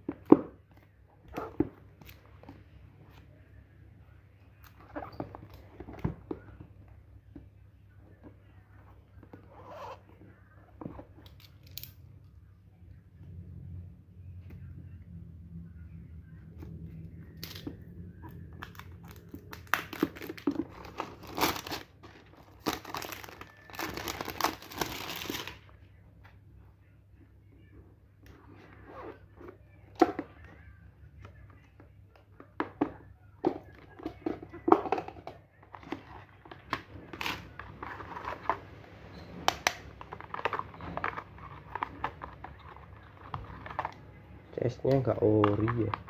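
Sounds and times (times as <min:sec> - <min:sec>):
plastic wrap crinkling and tearing: 0:18.6 - 0:25.6.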